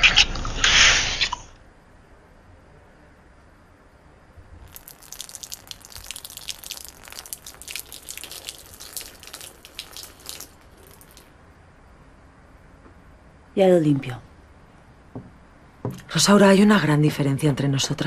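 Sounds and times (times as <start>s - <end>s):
wine pouring and dripping: 4.6s - 11.3s.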